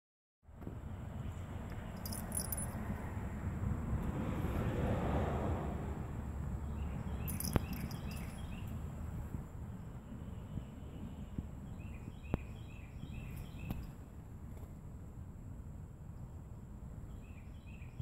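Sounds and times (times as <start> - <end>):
outdoor background rumble: 0.4 - 18.0
small birds chirping: 6.6 - 14.1.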